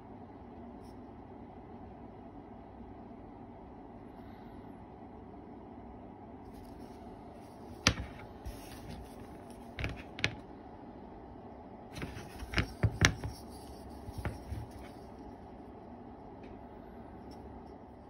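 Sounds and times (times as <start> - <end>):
low room hum: 0.0 - 18.0
pen scratching: 12.0 - 15.4.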